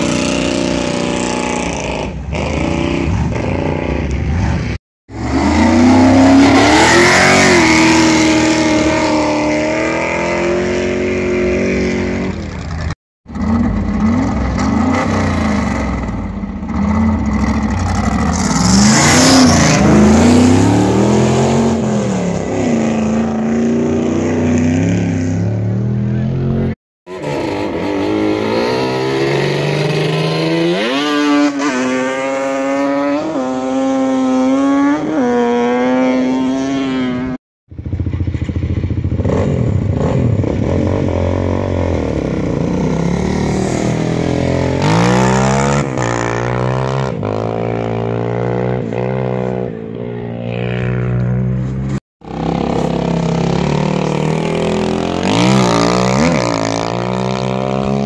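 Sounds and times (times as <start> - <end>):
quad engines revving: 5.2 - 12.7, 13.3 - 37.2, 39.1 - 51.6, 52.2 - 58.0.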